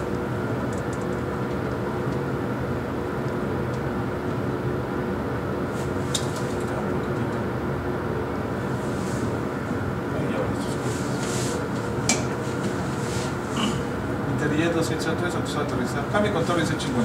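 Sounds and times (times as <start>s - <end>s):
engine and airflow rumble: 0.0s - 17.0s.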